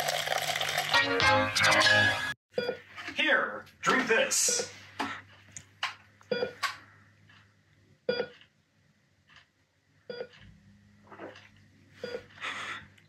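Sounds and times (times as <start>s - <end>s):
heart monitor beeps: 2.6s - 2.8s, 6.3s - 6.6s, 8.1s - 8.4s, 10.1s - 10.4s, 12.0s - 12.3s.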